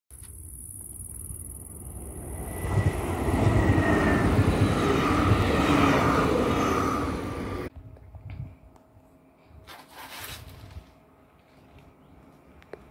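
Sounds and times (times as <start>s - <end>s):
high whine of train: 0.2s - 12.9s
electric train passing: 0.9s - 7.7s.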